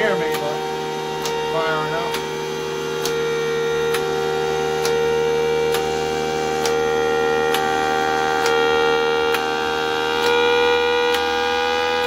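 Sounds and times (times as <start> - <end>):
siren steady tone: 0.0 - 12.0
solenoid clicks: 1.2 - 2.3, 3.0 - 3.3, 4.8 - 5.0, 6.6 - 6.8.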